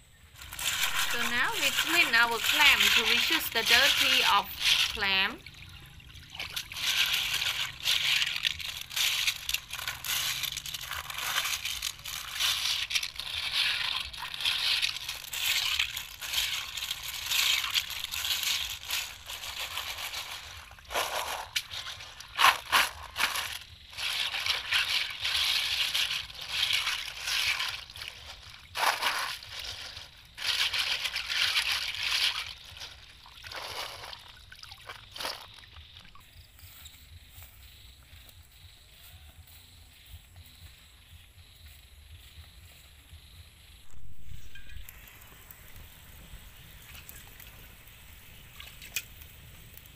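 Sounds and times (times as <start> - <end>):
clam shells rattling and grinding: 0.4 - 35.9
water sloshing: 0.4 - 36.2.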